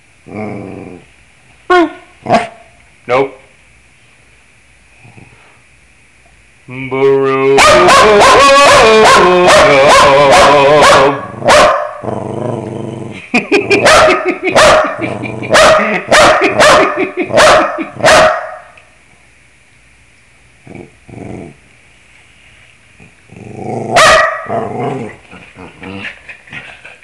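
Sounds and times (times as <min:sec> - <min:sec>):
dog howling: 0:07.4 - 0:11.2.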